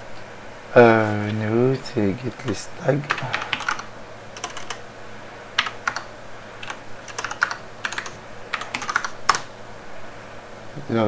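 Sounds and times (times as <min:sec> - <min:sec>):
computer keyboard typing: 0:02.4 - 0:04.8, 0:05.6 - 0:09.5.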